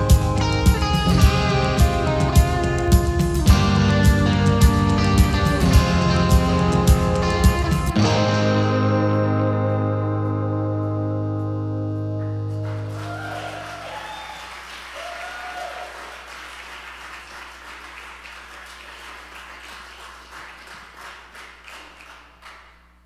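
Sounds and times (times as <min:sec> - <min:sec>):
acoustic guitar chord ringing: 0:00.0 - 0:13.7
audience cheering: 0:12.6 - 0:22.2
audience applause: 0:12.6 - 0:22.8.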